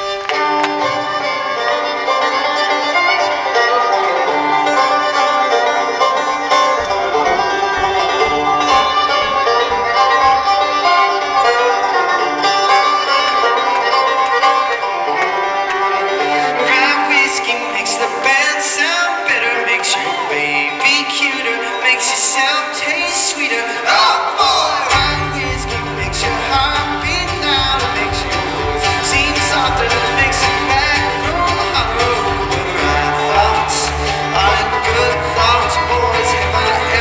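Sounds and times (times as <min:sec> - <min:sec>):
bluegrass string band playing: 0:00.0 - 0:37.0.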